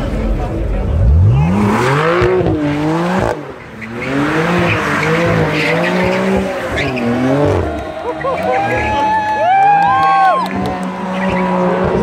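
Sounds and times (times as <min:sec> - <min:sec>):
car engine revving hard: 0:00.9 - 0:09.0, 0:10.4 - 0:12.0.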